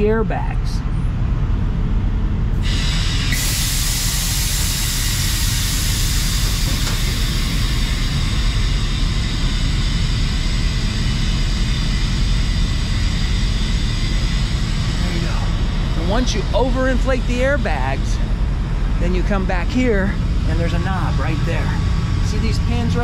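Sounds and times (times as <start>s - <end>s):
steady low rumble: 0.0s - 23.0s
compressed air hissing: 2.6s - 19.0s.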